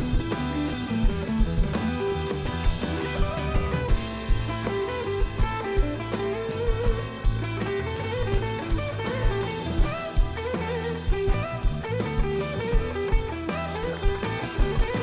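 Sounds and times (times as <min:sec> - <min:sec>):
bass guitar: 0:00.0 - 0:15.0
drum kit: 0:00.0 - 0:15.0
electric guitar lead: 0:00.0 - 0:15.0.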